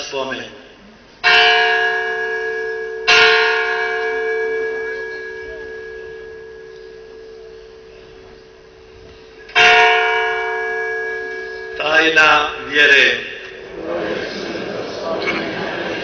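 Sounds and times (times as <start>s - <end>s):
bell ringing: 1.2s - 13.5s.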